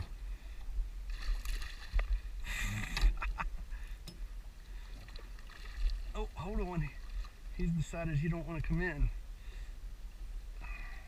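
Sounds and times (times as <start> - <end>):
steady low rumble: 0.0 - 11.0
water splashing against boat: 1.0 - 3.4, 4.2 - 9.1.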